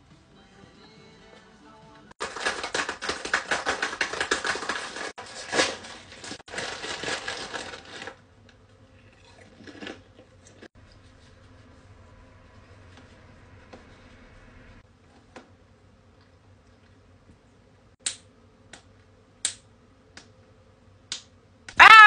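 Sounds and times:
plastic wrapper crinkling: 2.2 - 8.2.

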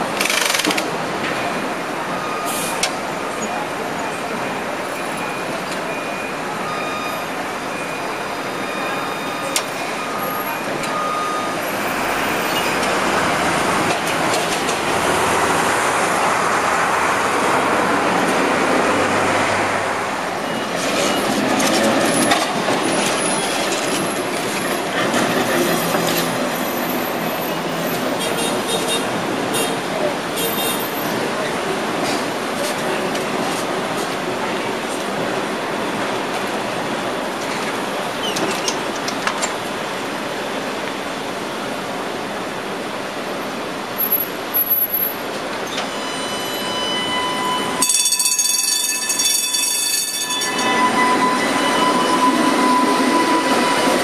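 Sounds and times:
street traffic: 0.0 - 54.0
streetcar rumbling past: 0.0 - 54.0
clicks and clanks: 0.2 - 1.4
thin squeals: 45.7 - 54.0.

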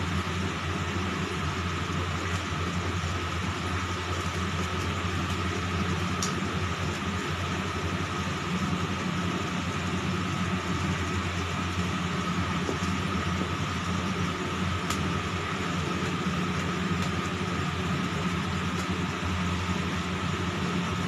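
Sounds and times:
mechanical hum: 0.0 - 21.0.

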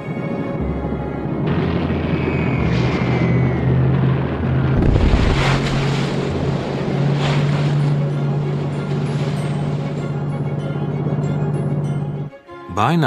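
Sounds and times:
rushing wind: 0.0 - 9.0
low steady drone: 0.0 - 12.4
sea wash: 1.6 - 11.8.

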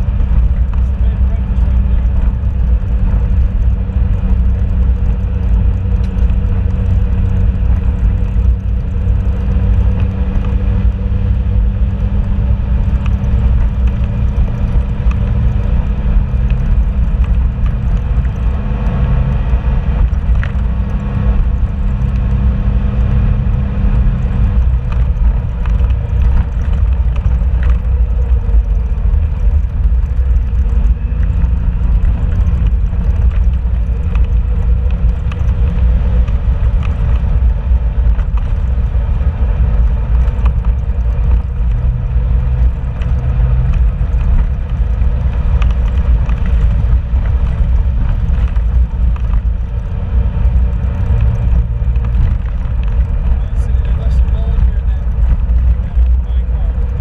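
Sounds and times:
vehicle engine and tyres rumbling: 0.0 - 57.0
faint clicks: 20.0 - 22.4, 24.6 - 57.0.

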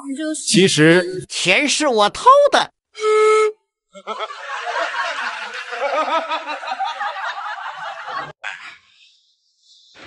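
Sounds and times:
laughter sound effect: 4.0 - 8.8.

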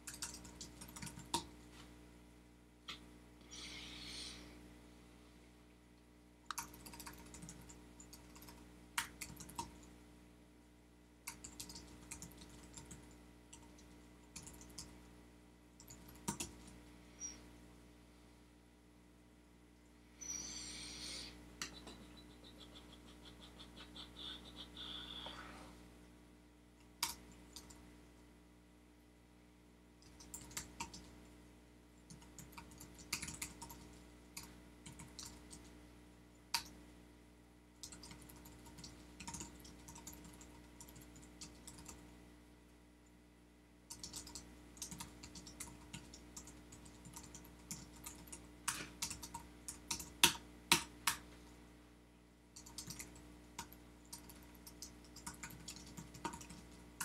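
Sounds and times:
typing on computer keyboard: 0.0 - 1.5, 6.5 - 9.9, 11.2 - 15.0, 15.8 - 16.7, 27.0 - 27.8, 30.0 - 31.1, 32.1 - 35.7, 37.8 - 42.1, 43.9 - 51.2, 52.6 - 57.0
steady low hum: 0.0 - 57.0.

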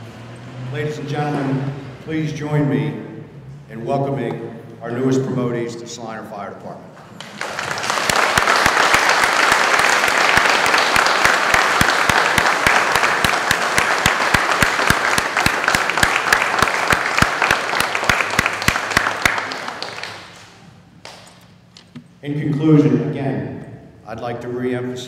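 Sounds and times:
loud close claps: 7.0 - 22.1
audience applauding: 7.2 - 21.3.

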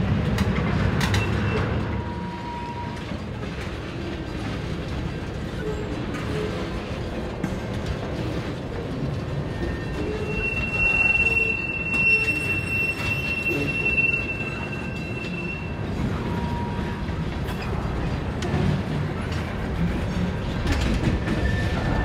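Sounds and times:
train wheels rumbling on rail: 0.0 - 22.0
high wheel squeal: 9.5 - 17.0.

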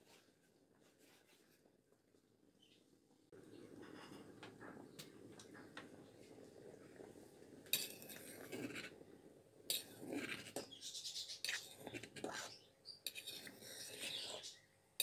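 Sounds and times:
spoon scraping metal pot: 7.7 - 9.0, 9.7 - 14.6.

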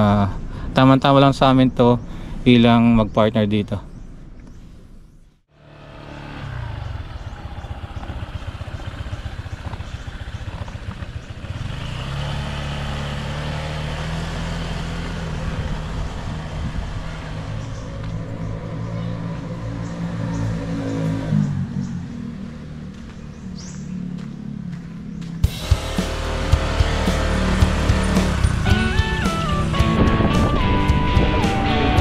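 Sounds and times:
scooter engine running: 5.6 - 32.0
wind noise: 15.4 - 18.5, 28.4 - 32.0.

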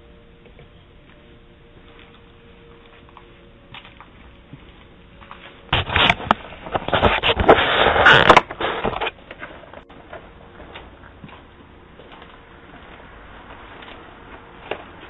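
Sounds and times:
scraping and rustling on microphone: 5.4 - 9.9.

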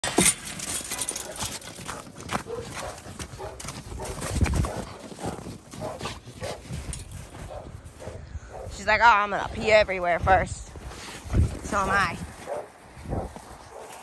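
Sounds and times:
footsteps crunching in snow: 0.7 - 14.0.

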